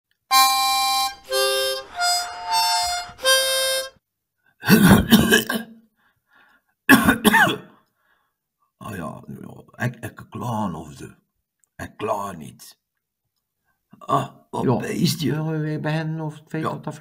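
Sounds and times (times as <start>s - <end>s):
harmonica tune: 0.3s - 4.0s
man's wordless vocal noises: 4.6s - 5.6s.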